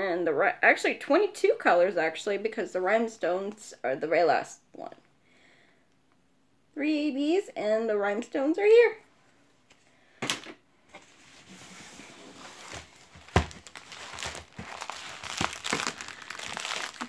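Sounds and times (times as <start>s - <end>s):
plastic packaging crinkling: 11.4s - 17.0s.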